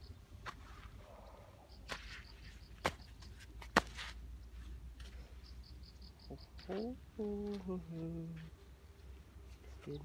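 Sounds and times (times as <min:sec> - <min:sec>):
insect chirping: 0:05.3 - 0:07.3.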